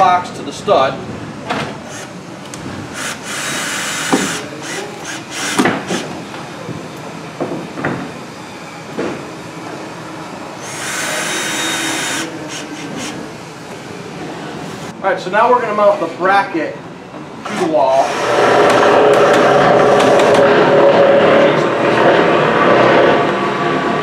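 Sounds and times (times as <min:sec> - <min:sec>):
cordless drill driving screws: 0:01.8 - 0:02.2, 0:02.9 - 0:06.1, 0:10.6 - 0:13.2.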